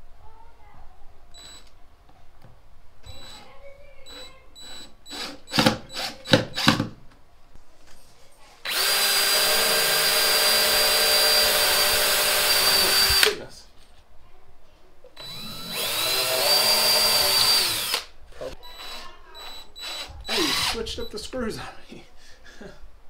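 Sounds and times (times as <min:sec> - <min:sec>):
cordless drill driving screw: 0:03.1 - 0:03.4, 0:04.1 - 0:06.8, 0:08.7 - 0:13.4, 0:15.2 - 0:18.1, 0:18.7 - 0:20.8
short loud drill bursts: 0:03.1 - 0:03.5, 0:04.1 - 0:06.8, 0:08.7 - 0:13.4, 0:15.2 - 0:18.1, 0:18.7 - 0:21.1.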